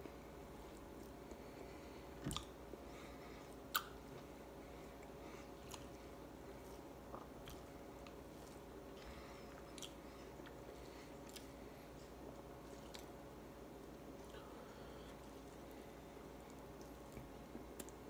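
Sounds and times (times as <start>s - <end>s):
person chewing: 2.2s - 2.6s, 4.9s - 13.2s.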